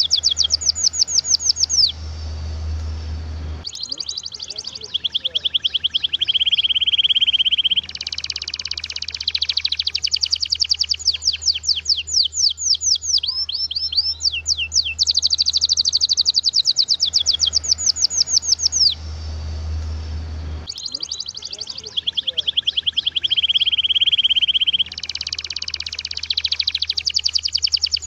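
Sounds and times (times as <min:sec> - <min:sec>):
low steady hum: 0:00.0 - 0:09.6, 0:17.0 - 0:25.0
canary singing trills: 0:00.0 - 0:28.0.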